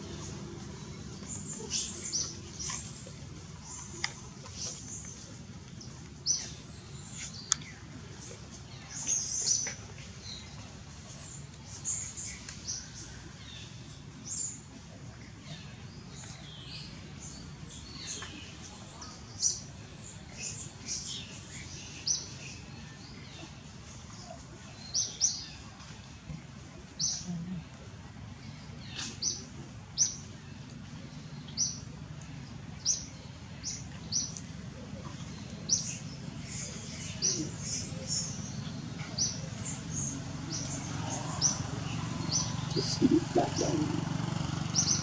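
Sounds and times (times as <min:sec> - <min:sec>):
low background hum: 0:00.0 - 0:45.0
high-pitched chirping calls: 0:42.4 - 0:44.1.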